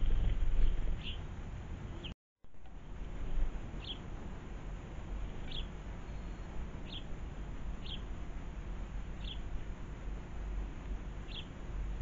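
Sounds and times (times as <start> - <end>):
sparrows chirping: 0.0 - 1.2, 3.2 - 4.1, 5.2 - 8.2, 9.1 - 9.6, 11.2 - 11.8
low background rumble: 0.0 - 12.0.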